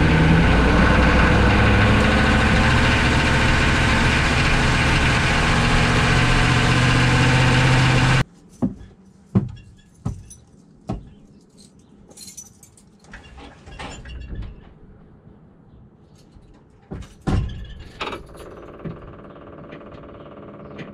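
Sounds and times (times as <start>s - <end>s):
engine running loud and steady: 0.0s - 8.2s.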